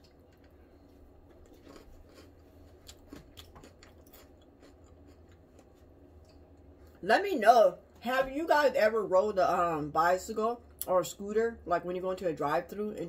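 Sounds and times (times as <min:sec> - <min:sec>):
chewing lettuce: 0:00.0 - 0:05.9
low steady hum: 0:00.0 - 0:13.0.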